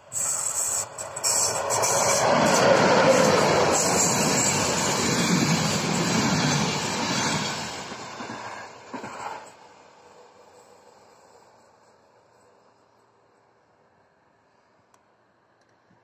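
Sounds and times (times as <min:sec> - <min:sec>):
train rumbling past on rails: 0:00.0 - 0:12.8.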